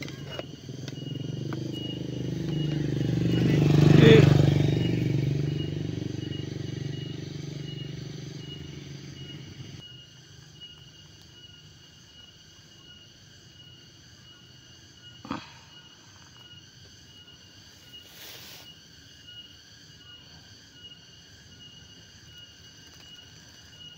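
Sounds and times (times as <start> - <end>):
thin pulsing high tone: 0.0 - 9.9
motor engine: 0.0 - 10.0.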